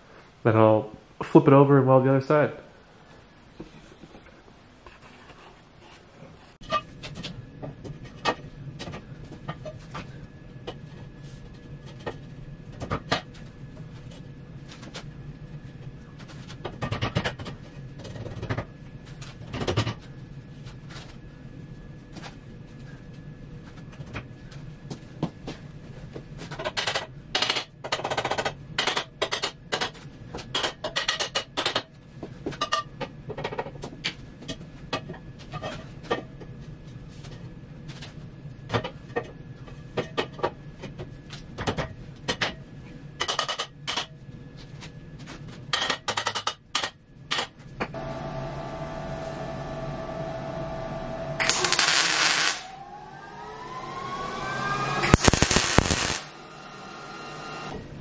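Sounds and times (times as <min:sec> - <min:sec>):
steady low hum: 0:47.0 - 0:53.2, 0:55.0 - 0:56.9
steady humming tone: 0:47.8 - 0:58.0
welder crackle: 0:51.4 - 0:52.7, 0:55.0 - 0:56.5.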